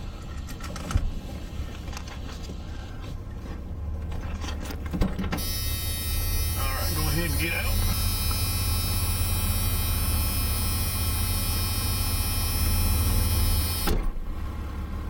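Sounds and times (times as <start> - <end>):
car engine idling: 1.3 - 15.0
faint high whine: 5.4 - 14.0.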